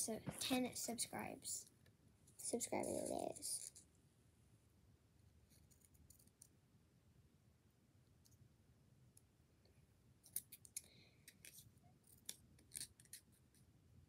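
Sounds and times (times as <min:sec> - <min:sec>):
scissors cutting paper: 0:11.3 - 0:13.4.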